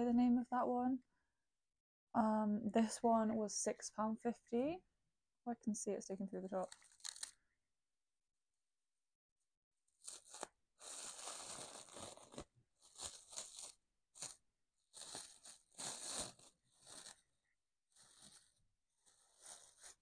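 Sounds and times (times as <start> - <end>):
plastic wrap crinkling and tearing: 6.6 - 7.4, 10.0 - 20.0.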